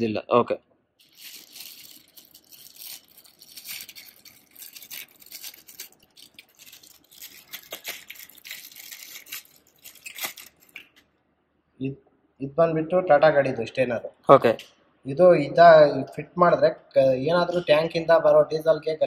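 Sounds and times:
plastic bag crinkling: 1.0s - 11.0s.

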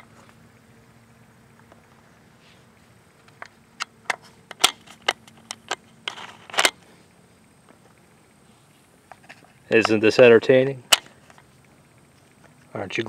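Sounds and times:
cartridge scraping into magazine: 3.3s - 6.8s
cartridges clicking into magazine: 4.5s - 6.8s.

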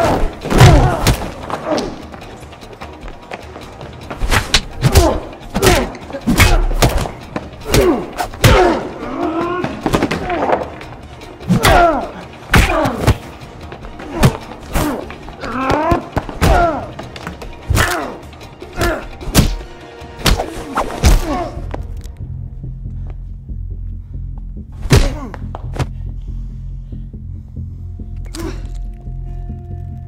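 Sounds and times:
grunts and groans: 0.0s - 2.2s, 4.8s - 6.8s, 7.6s - 10.8s, 11.4s - 13.3s, 13.9s - 19.4s, 24.1s - 27.4s, 28.2s - 29.5s.

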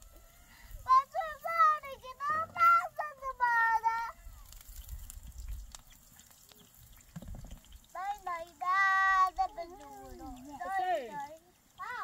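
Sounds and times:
wood fire crackling: 0.0s - 12.0s
child's high-pitched voice: 0.8s - 4.4s, 8.0s - 12.0s.

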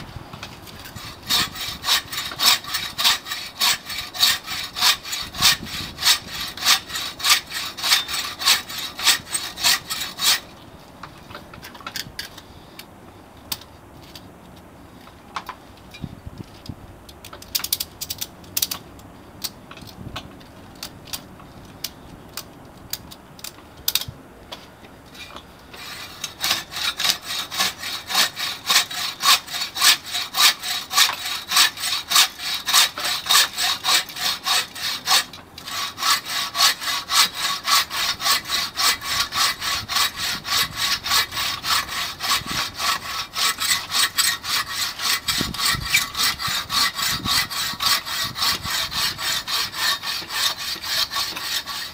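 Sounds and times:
saw cutting through log: 0.8s - 10.5s, 25.8s - 51.9s.

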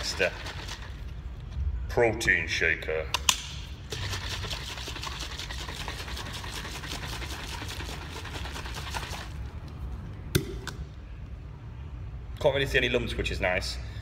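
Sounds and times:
protein shaker sloshing: 0.0s - 1.2s, 3.9s - 9.7s.

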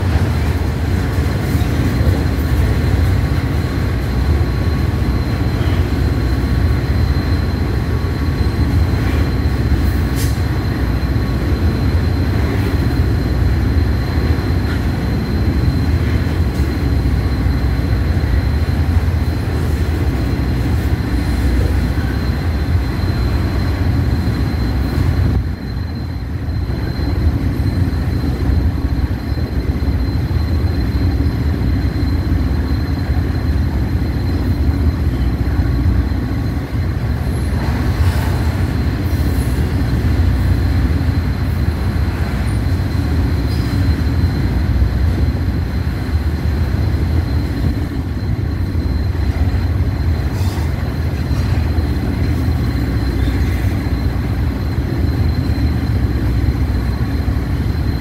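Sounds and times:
freight train rumbling past: 0.0s - 58.0s
thin high whine: 0.0s - 58.0s.

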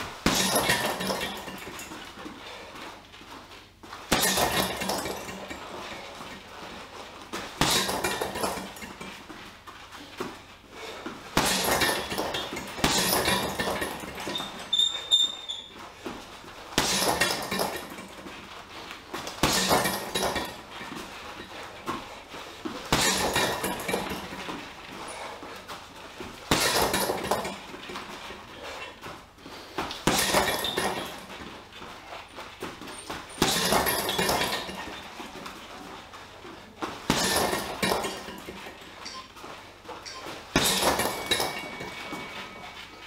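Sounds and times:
gloves punching heavy bag: 0.0s - 3.1s, 3.9s - 39.2s, 39.8s - 43.0s
chain clinking rattle: 0.3s - 2.6s, 4.2s - 6.4s, 7.8s - 9.2s, 11.5s - 15.4s, 16.5s - 18.5s, 19.4s - 22.2s, 23.1s - 25.4s, 30.0s - 35.5s, 37.1s - 43.0s.

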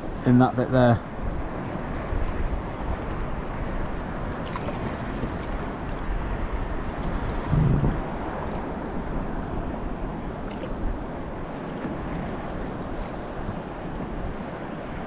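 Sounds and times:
wind buffeting microphone: 0.0s - 15.0s
water lapping against kayak hull: 1.0s - 15.0s
low thump: 7.5s - 8.1s.

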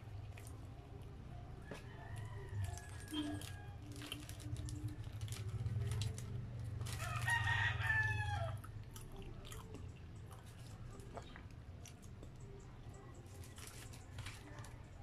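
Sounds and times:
wet chewing: 0.0s - 15.0s
rooster crowing: 1.6s - 3.9s, 6.9s - 8.7s.

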